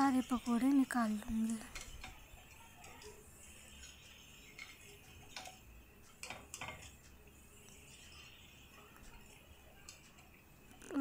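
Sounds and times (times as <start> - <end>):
faint sizzle of deep-frying: 0.0 - 11.0
skimmer clicking against pan: 1.3 - 7.2.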